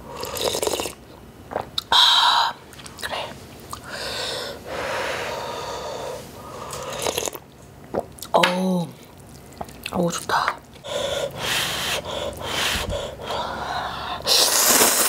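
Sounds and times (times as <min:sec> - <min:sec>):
person slurping broth: 0:00.1 - 0:01.8, 0:05.4 - 0:07.4, 0:14.2 - 0:15.0.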